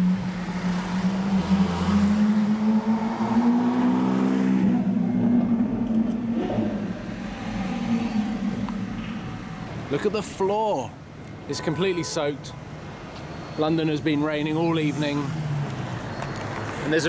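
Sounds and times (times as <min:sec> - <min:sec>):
car engine pulling away: 0:00.0 - 0:10.0.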